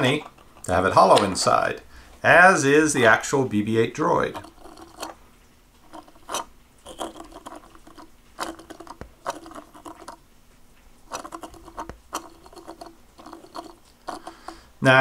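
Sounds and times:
fingers rubbing ridged plastic: 4.1 - 5.2, 5.8 - 10.2, 11.1 - 14.7
plastic figure scraping on wood: 4.1 - 5.2, 5.8 - 10.2, 11.1 - 14.7.

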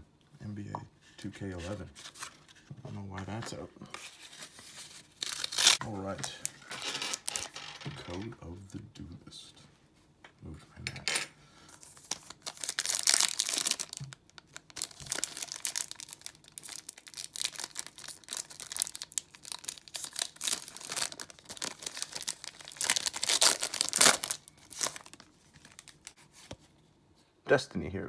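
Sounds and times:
foil wrapper crinkling and tearing: 4.2 - 7.6, 11.9 - 26.2.

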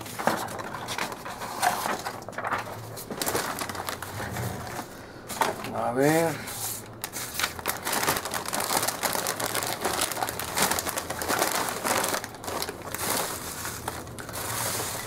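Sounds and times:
foil snack bag crinkling: 0.0 - 4.2, 5.4 - 15.0.

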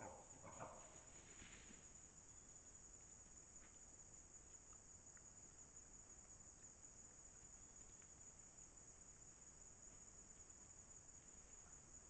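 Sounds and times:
faint ticks: 2.7 - 12.0.

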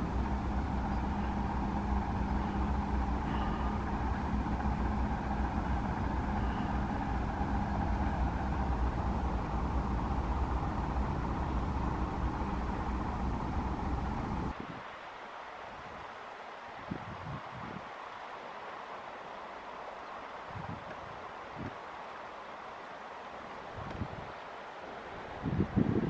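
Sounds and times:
low background rumble: 0.0 - 14.6
faint hum: 0.0 - 15.0.

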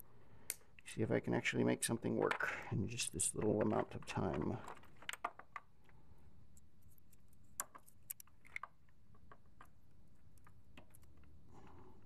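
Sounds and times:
plastic modules clicking together: 7.1 - 11.4.

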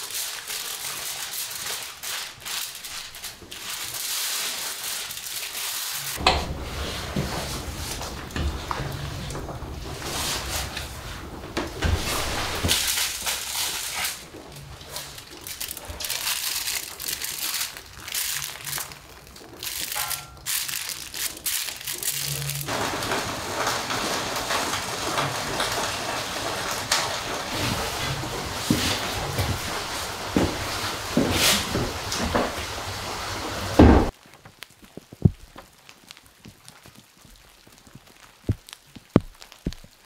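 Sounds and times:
aluminium foil handled: 0.0 - 40.0
firewood clunking into a stove: 6.2 - 10.1
steady hiss: 27.5 - 40.0.

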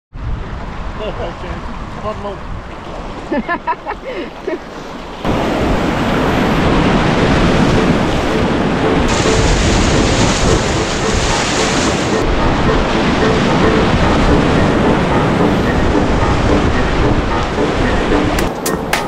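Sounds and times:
wind buffeting microphone: 0.1 - 19.0
river rapids rushing: 4.5 - 19.0.

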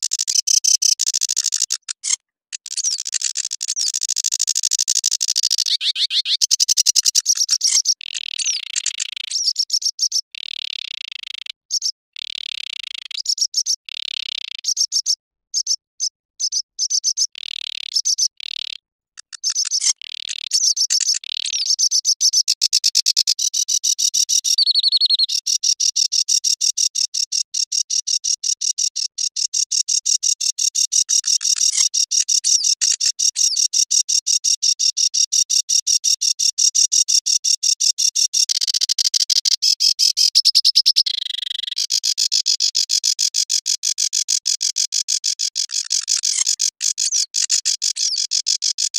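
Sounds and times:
warbler singing: 5.3 - 10.2, 14.7 - 17.3, 17.9 - 18.4, 19.4 - 22.6, 23.2 - 26.3.

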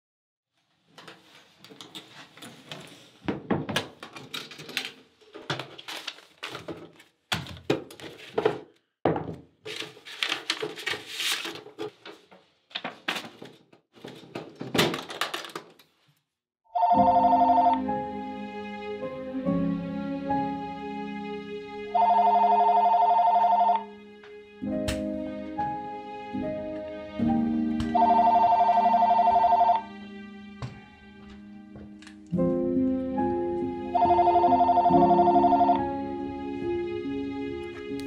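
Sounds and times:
boxes knocking in metal tray: 5.4 - 9.8
telephone ringing: 16.7 - 17.8, 22.0 - 23.9, 27.9 - 29.9, 34.0 - 35.9.

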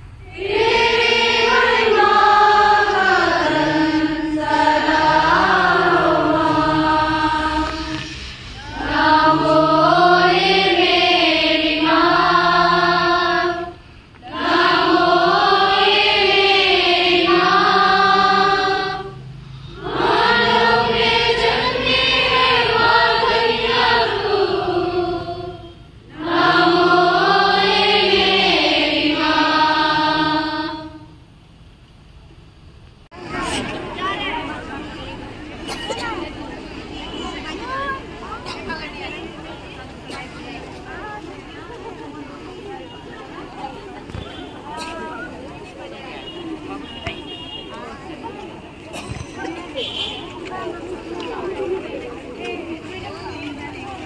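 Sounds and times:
congregation singing a hymn: 0.0 - 31.2.

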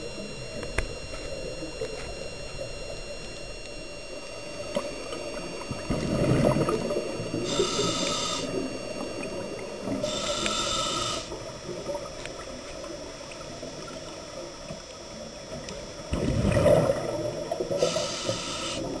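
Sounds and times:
low underwater rumble: 0.0 - 10.6, 15.4 - 17.8
faint high whines: 0.0 - 19.0
exhaled bubbles gurgling: 1.6 - 19.0
regulator inhale hiss: 7.3 - 8.7, 10.0 - 11.4, 17.8 - 18.9.

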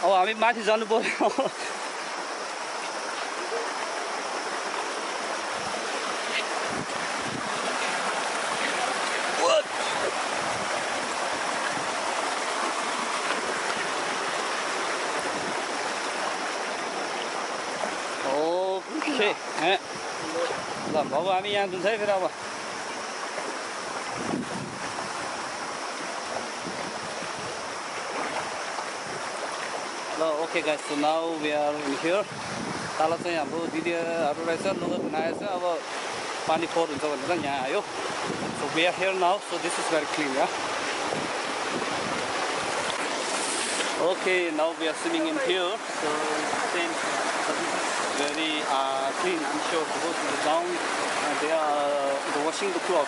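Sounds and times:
river water rushing: 0.0 - 53.0.

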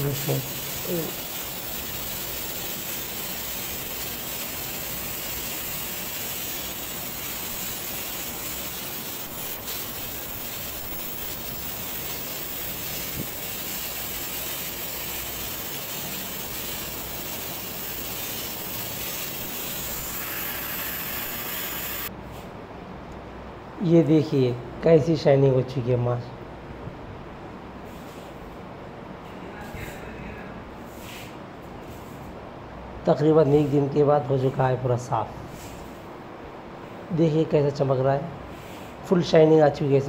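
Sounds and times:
angle grinder polishing stone: 16.2 - 22.1.

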